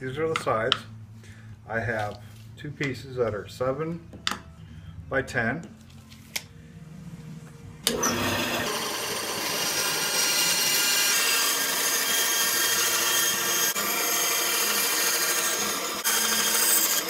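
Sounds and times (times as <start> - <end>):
band saw whine: 7.8 - 17.0.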